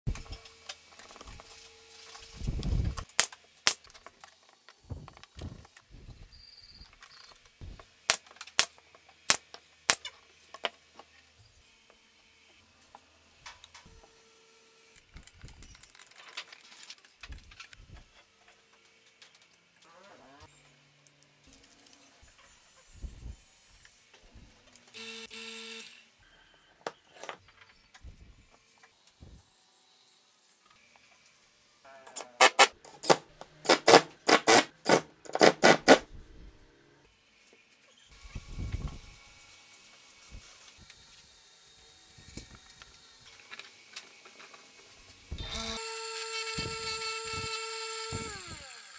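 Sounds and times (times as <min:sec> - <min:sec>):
small power tool whirring: 0:04.8 - 0:15.8, 0:21.4 - 0:26.7, 0:37.9 - 0:48.9.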